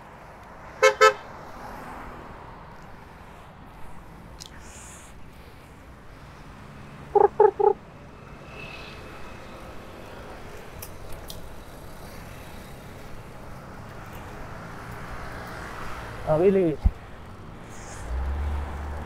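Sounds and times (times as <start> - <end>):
street traffic noise: 0.0 - 19.0
vehicle horn beeping: 0.8 - 1.2.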